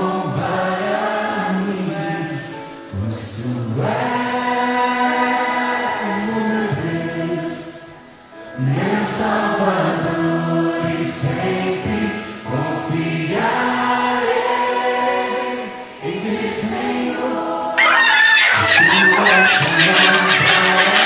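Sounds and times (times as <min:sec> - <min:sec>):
choir singing slow song: 0:00.0 - 0:21.0.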